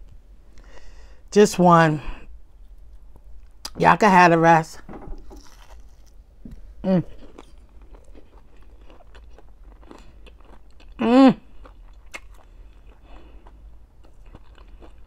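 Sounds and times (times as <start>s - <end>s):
person humming mmm: 6.8s - 7.2s, 11.0s - 11.5s
chewing with mouth closed: 7.0s - 15.0s.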